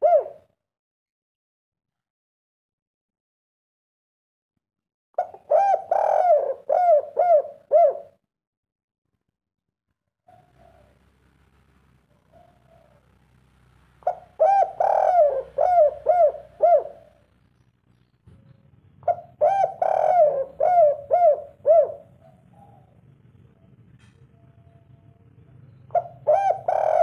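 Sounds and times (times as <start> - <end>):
dove cooing: 0.0 - 0.5, 5.2 - 8.2, 10.3 - 11.0, 12.2 - 13.1, 14.0 - 17.2, 19.0 - 23.0, 25.8 - 27.0.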